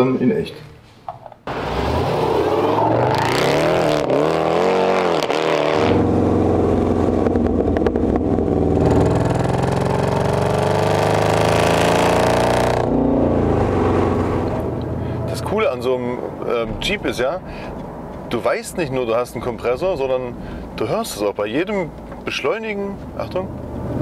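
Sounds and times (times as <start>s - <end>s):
car engine revving: 1.5s - 16.6s.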